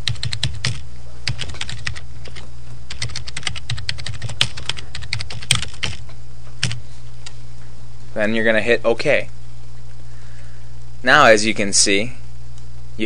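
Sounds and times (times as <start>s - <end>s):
keyboard typing: 0.0s - 6.0s, 6.6s - 6.8s
steady low hum: 0.0s - 13.0s.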